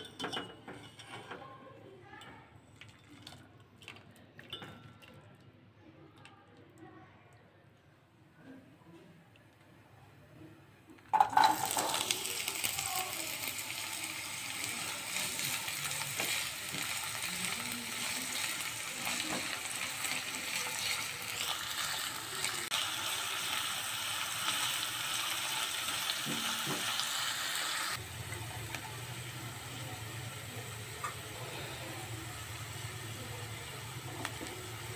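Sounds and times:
spatula scraping a pan: 0.5s - 1.5s
onions sizzling in hot oil: 11.1s - 34.9s.

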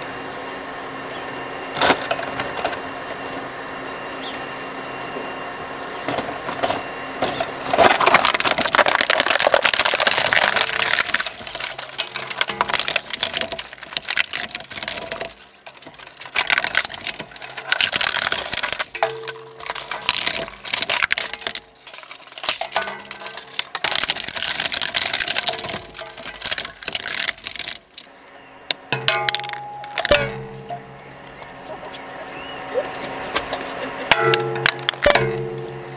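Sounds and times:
shredder humming: 0.0s - 35.9s
plastic crunching and cracking: 6.1s - 28.1s, 29.2s - 30.4s.

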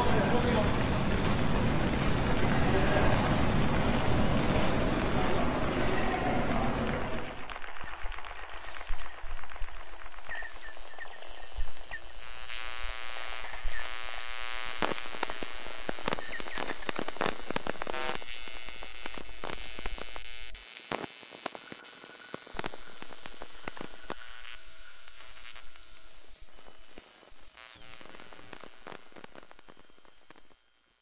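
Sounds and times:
buzzing tone: 0.0s - 5.6s, 7.9s - 31.0s
low hum: 0.0s - 7.5s
dense crackling and clicking: 0.0s - 31.0s.

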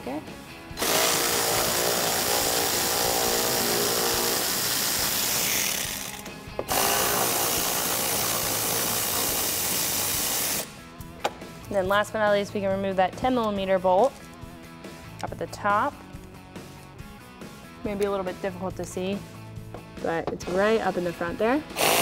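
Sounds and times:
cordless electric ratchet running: 0.8s - 10.7s, 21.8s - 22.0s.

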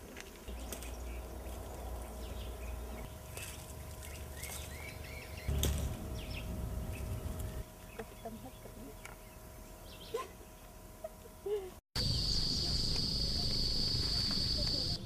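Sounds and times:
low rumble: 5.4s - 7.7s.

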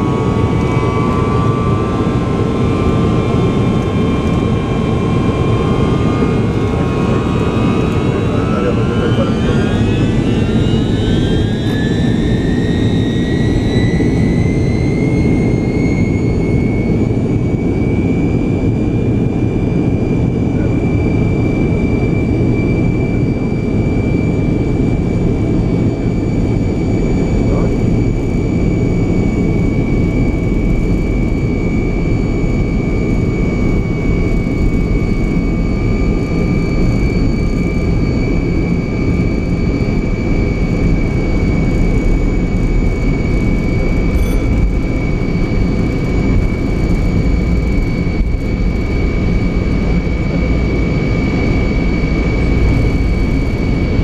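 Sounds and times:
jet engines at takeoff power: 0.0s - 54.0s.

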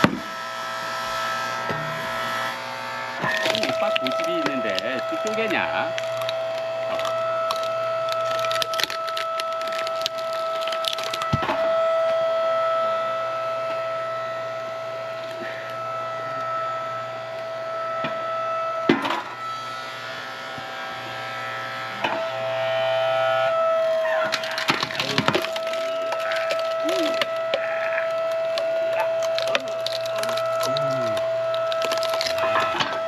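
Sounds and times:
log splitter whining: 0.0s - 33.0s
wood cracking and splitting: 3.2s - 12.2s, 23.6s - 33.0s.

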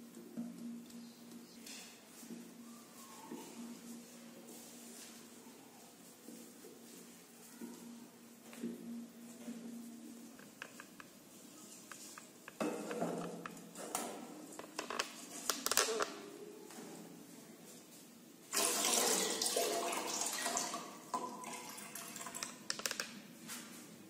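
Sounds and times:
water pouring into metal pot: 18.5s - 22.6s.

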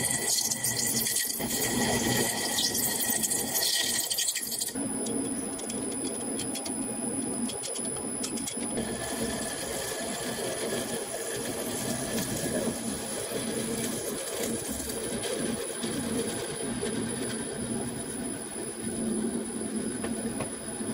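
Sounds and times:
lathe humming with high whine: 4.8s - 20.9s.

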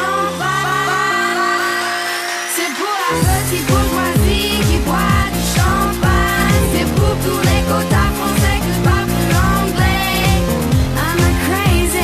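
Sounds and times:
house dance music: 0.0s - 12.0s
kick drum: 3.2s - 12.0s.

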